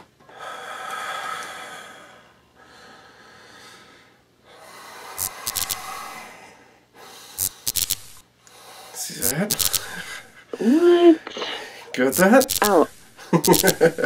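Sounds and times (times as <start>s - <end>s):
heavy breathing: 0.2s - 7.7s, 8.4s - 12.0s
electric spark crackles: 5.2s - 6.0s, 7.4s - 8.2s, 9.2s - 10.1s, 12.1s - 14.0s.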